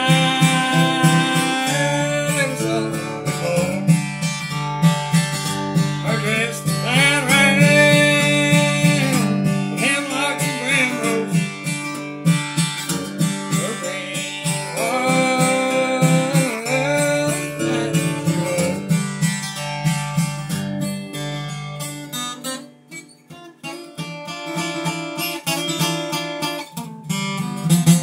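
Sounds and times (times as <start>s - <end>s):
man singing: 0.0s - 4.1s, 5.8s - 12.0s, 13.1s - 19.1s
acoustic guitar strumming: 0.0s - 28.0s.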